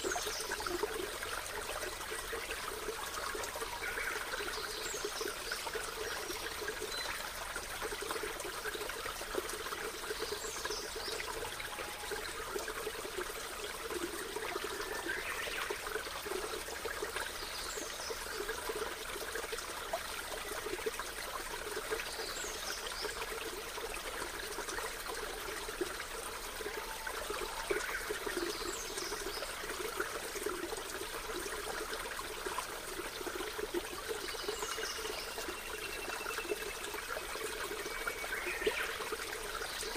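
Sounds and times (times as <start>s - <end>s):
water trickling: 0.0s - 39.9s.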